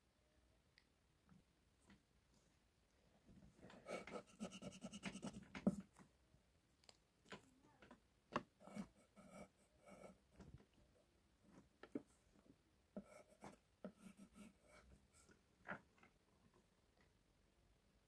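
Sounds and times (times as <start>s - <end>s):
pencil scratching on paper: 3.8s - 5.8s, 8.6s - 10.3s, 13.0s - 15.3s.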